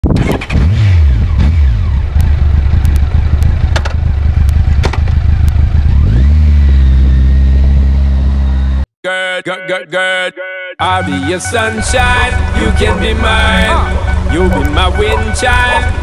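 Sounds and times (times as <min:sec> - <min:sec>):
motorcycle engine revving: 0:00.2 - 0:08.9.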